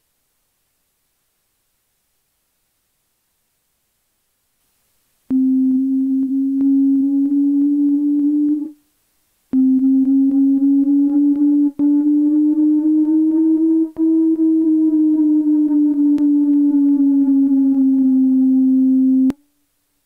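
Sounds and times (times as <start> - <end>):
sustained test tone: 5.3 - 8.8, 9.5 - 19.4.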